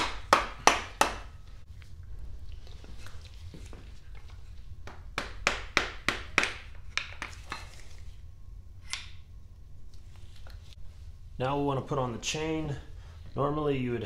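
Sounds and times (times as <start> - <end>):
hammer tapping wooden block: 0.0 - 1.3, 4.8 - 7.2.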